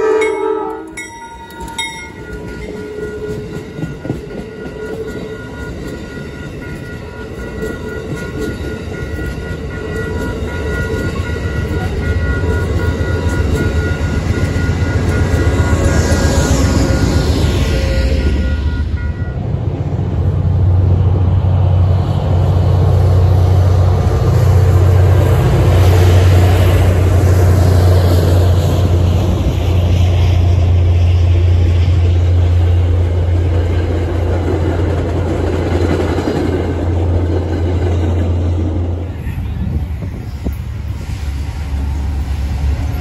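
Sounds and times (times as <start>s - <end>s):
crossing bell ringing: 0.0s - 20.0s
diesel locomotive engine drone: 0.0s - 43.0s.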